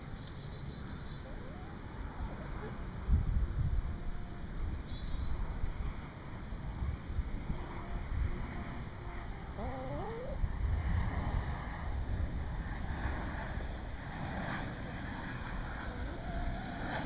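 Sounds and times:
steady low rumble: 0.0 - 17.0
hens vocalizing: 9.4 - 10.5.

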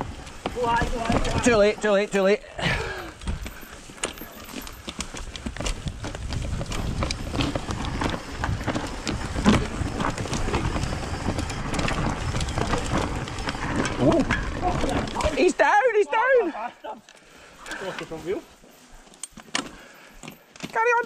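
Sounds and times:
bike clicks and rattles: 0.0 - 16.0, 17.0 - 21.0
tyres rumbling over dirt: 0.0 - 16.2.

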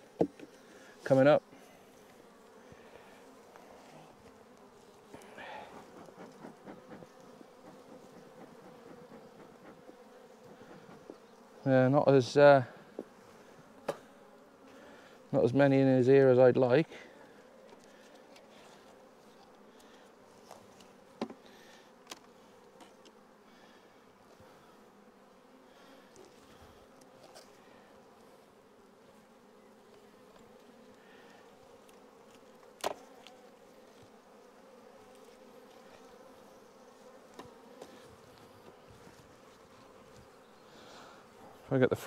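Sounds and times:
honeybees humming: 0.0 - 42.0.

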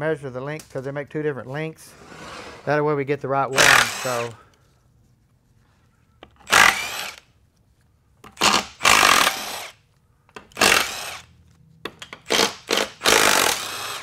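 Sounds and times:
impact wrench bursts: 3.5 - 4.4, 6.4 - 7.2, 8.4 - 11.3, 12.1 - 14.0.

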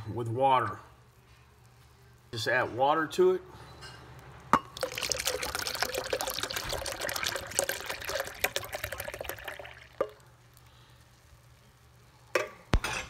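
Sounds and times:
water pouring and gurgling: 4.7 - 10.2.

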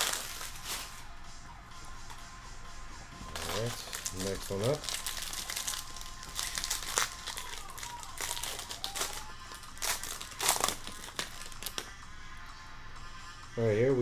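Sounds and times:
foil wrapper crinkling: 0.0 - 1.1, 3.3 - 12.0.

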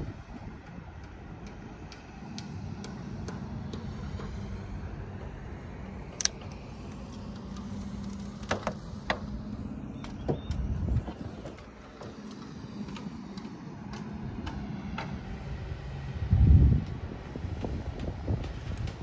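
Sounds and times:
low motor hum: 0.0 - 19.0
low rumble: 4.1 - 12.9
sharp clicks: 6.2 - 9.2.

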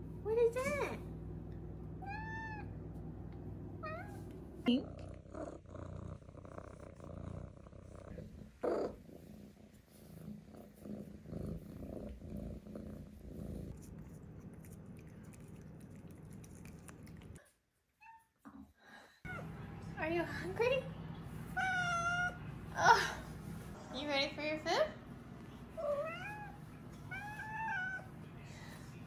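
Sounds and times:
kitten purring: 3.8 - 17.4.

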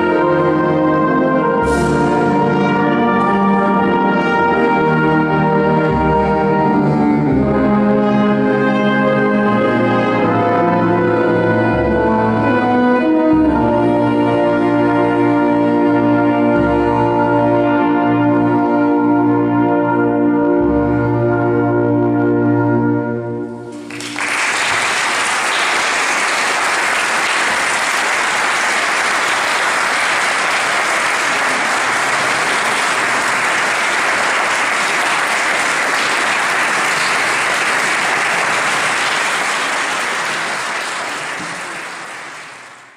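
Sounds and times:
audience applause: 23.7 - 42.9.

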